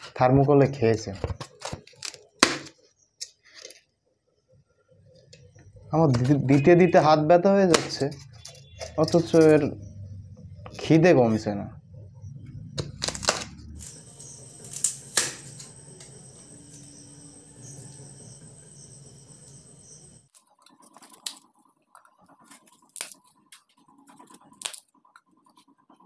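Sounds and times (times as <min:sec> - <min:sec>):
low steady hum: 0:08.0 - 0:20.3
polystyrene foam snapping and crackling: 0:12.8 - 0:15.8, 0:22.5 - 0:23.2.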